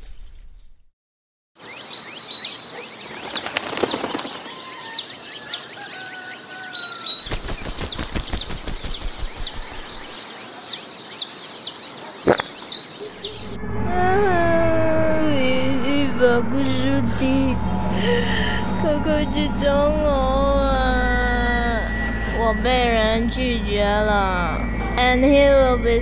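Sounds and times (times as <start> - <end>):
small birds chirping: 1.6 - 13.3
low whistled bird notes: 7.2 - 10.2.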